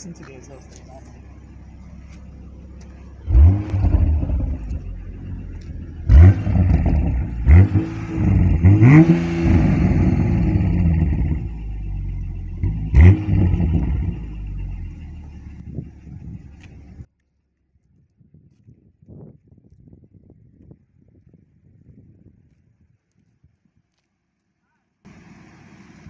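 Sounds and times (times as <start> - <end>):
car engine revving from idle: 1.2 - 17.1.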